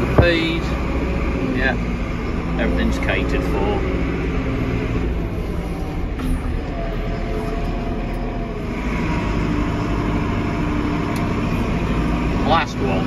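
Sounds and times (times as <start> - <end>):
diesel engine running: 0.0 - 13.0.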